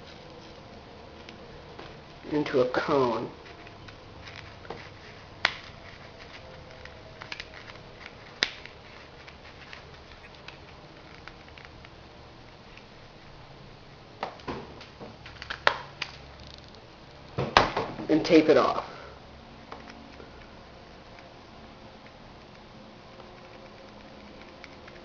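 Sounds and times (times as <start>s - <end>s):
paper rustling and crinkling: 3.2s - 11.8s.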